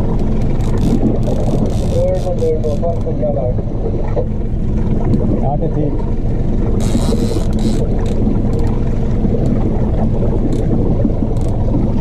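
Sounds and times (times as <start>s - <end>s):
outboard motor droning: 0.0s - 12.0s
water washing: 0.0s - 12.0s.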